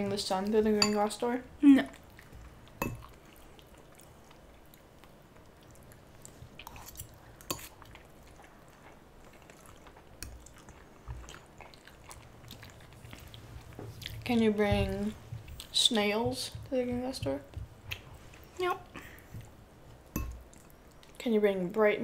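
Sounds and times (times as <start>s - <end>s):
noodles slurped and chewed: 1.9s - 14.3s.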